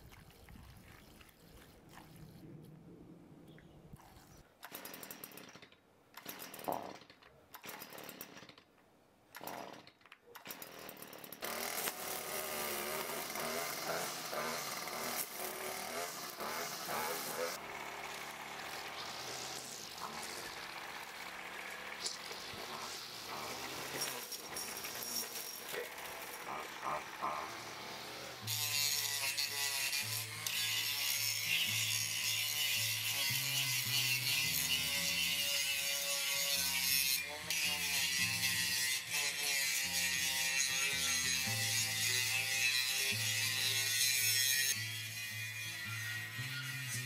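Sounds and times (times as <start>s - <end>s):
angle grinder sanding metal: 11.5s - 47.0s
garden tool scraping ground: 18.6s - 26.7s.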